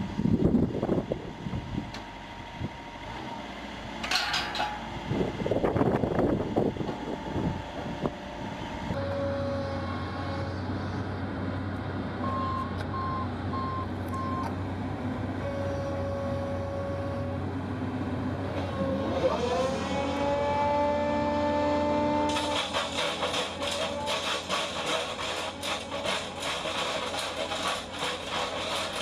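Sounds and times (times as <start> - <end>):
excavator engine running: 0.0 - 29.0
short beeps: 12.2 - 14.5.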